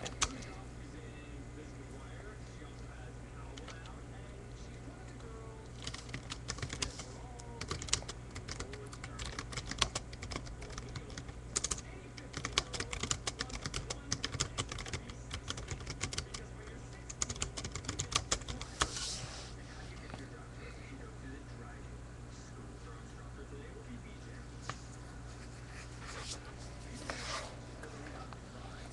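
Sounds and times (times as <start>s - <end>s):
steady low hum: 0.0s - 28.9s
typing on computer keyboard: 5.8s - 7.0s, 7.6s - 16.4s, 17.1s - 18.6s.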